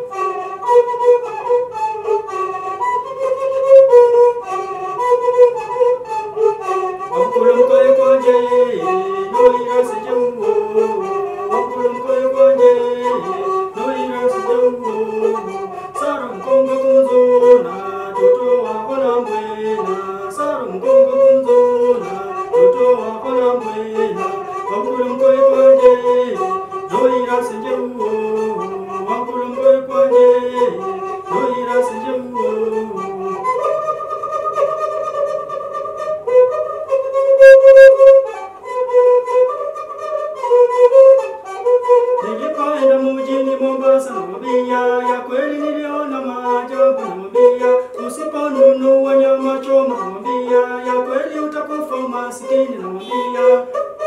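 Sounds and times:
bowed one-string fiddle melody: 0.0s - 54.0s
person singing: 6.6s - 33.8s, 42.1s - 54.0s.

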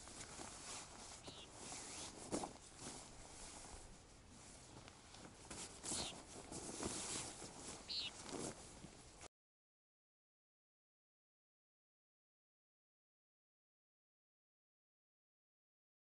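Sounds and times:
nylon sack rustling: 0.0s - 9.2s.

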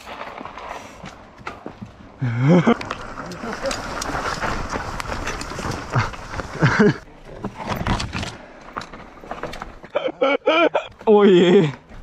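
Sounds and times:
bike tyres skidding on dirt: 0.0s - 7.1s.

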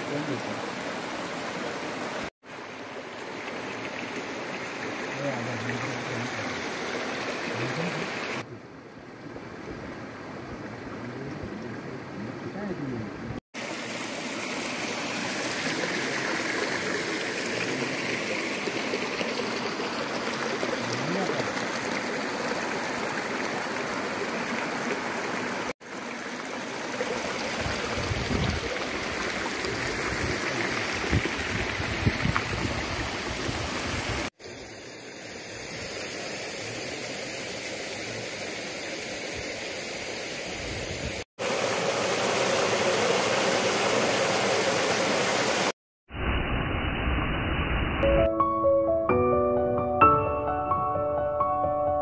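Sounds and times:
flowing stream rushing: 0.0s - 8.5s, 13.6s - 45.8s.

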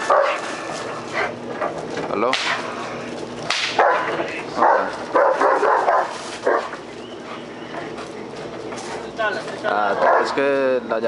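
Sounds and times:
dog barking: 0.0s - 0.5s, 3.8s - 6.8s, 9.9s - 10.5s.

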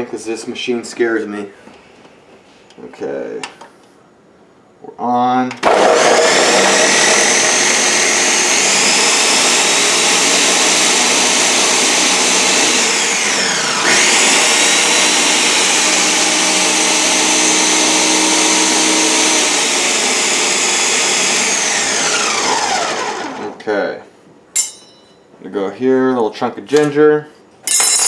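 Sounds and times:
blender running at high speed: 5.6s - 23.6s.

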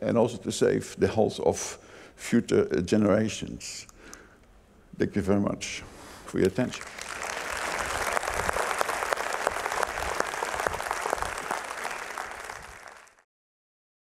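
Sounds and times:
audience applauding: 6.7s - 13.2s.

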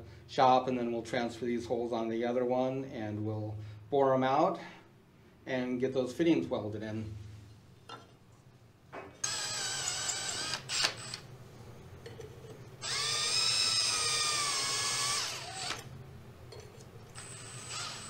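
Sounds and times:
cordless drill whining: 9.2s - 11.2s, 12.8s - 15.9s, 17.2s - 18.0s.

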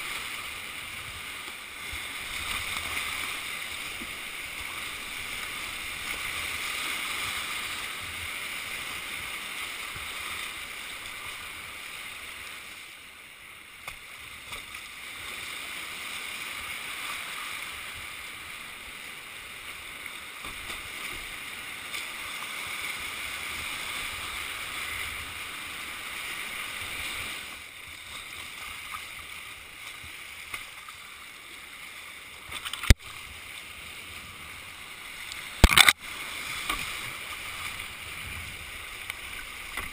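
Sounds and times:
whitewater rushing: 0.0s - 12.8s, 14.9s - 39.9s.

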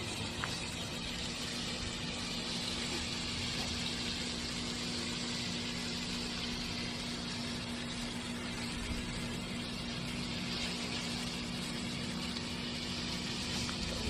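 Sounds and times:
low steady hum: 0.0s - 14.0s
meat sizzling on grill pan: 0.0s - 14.0s.

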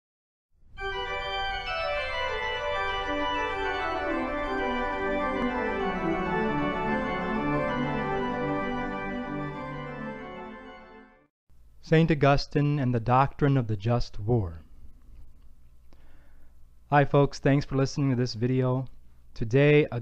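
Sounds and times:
organ music: 0.8s - 11.3s.

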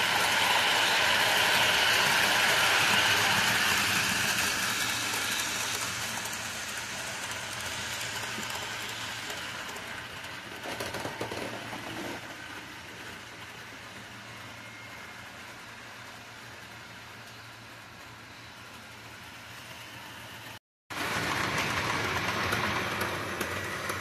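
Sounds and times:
model train wheels rattling: 0.2s - 13.2s, 21.0s - 24.0s
model train clatter: 0.2s - 14.0s, 20.0s - 24.0s.

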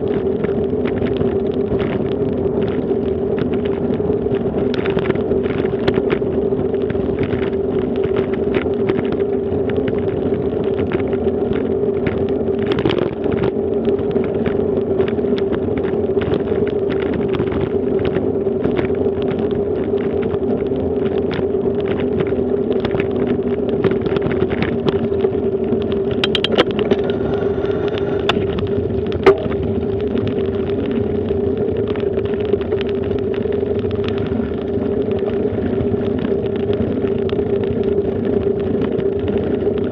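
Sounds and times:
bicycle rolling over brick paving: 0.0s - 39.9s
bike rattling over bumps: 0.0s - 39.9s.

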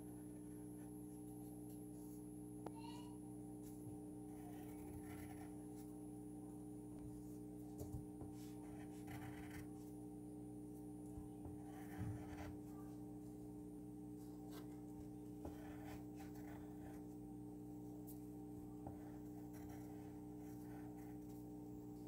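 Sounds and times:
steady low hum: 0.0s - 22.0s
pencil scratching on paper: 3.6s - 5.9s, 8.2s - 9.9s, 11.5s - 12.7s, 14.5s - 17.2s, 18.8s - 21.5s.

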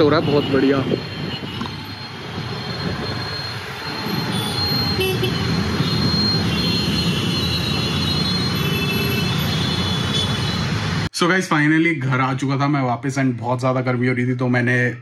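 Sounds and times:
road traffic rumble: 0.0s - 11.2s.

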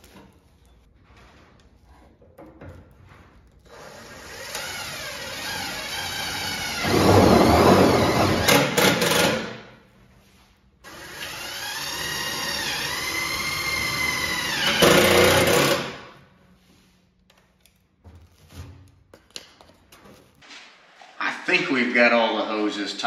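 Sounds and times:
cordless drill motor: 10.9s - 15.8s.

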